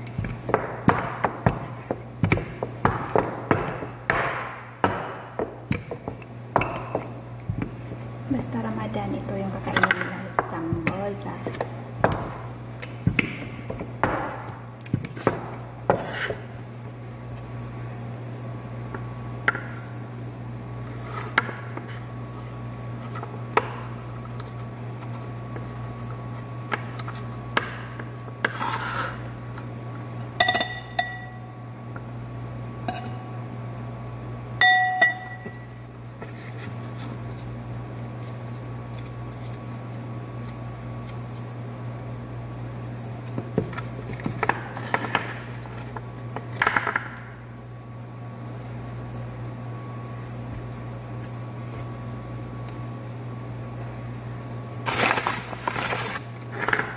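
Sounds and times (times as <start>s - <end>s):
rolling pin rolling over dough: 0.0s - 19.8s
steady low hum: 0.0s - 56.9s
dishware clinking: 30.4s - 31.5s.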